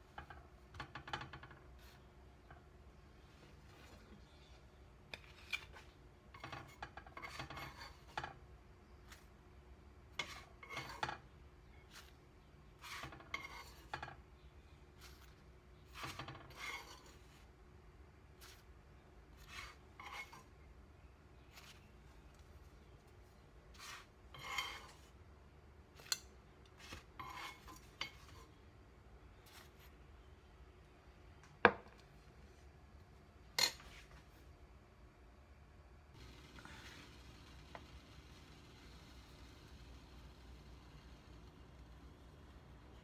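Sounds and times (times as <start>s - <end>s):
metal spatula scraping frying pan: 6.4s - 8.4s, 10.1s - 11.3s, 12.7s - 14.2s, 15.0s - 17.4s, 19.4s - 20.6s, 23.8s - 25.1s, 26.8s - 28.6s.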